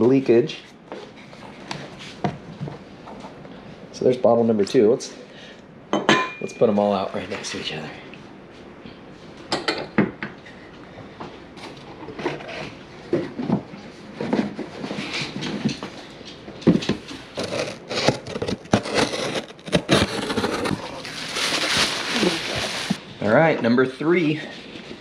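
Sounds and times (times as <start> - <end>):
packaging rustling: 17.2 - 23.0
sliding scrapes: 17.2 - 23.0.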